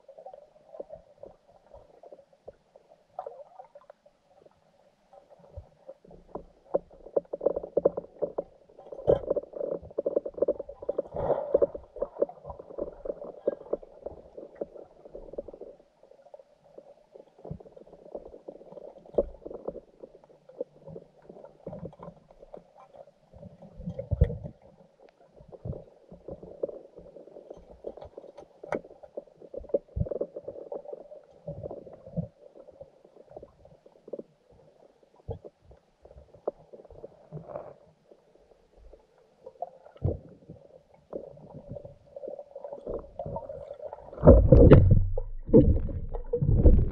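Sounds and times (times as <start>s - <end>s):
underwater gurgling: 0.0s - 46.9s
underwater knocks and clicks: 5.2s - 34.4s, 42.6s - 46.9s.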